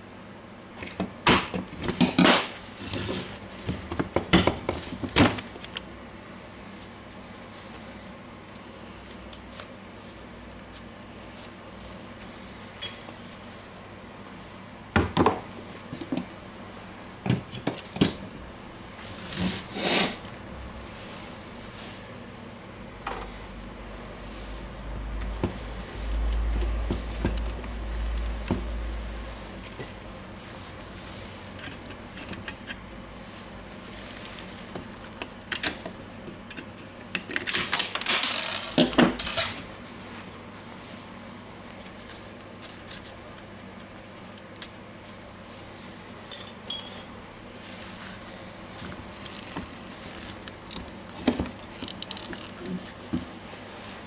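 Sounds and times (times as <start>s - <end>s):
clicks and clinks of parts handled: 50.7s - 52.7s.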